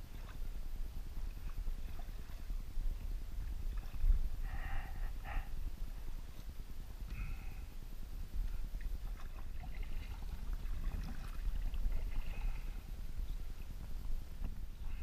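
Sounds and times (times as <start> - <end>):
wind rumble on microphone: 0.0 - 15.0
paddle splashing and dripping: 8.5 - 15.0.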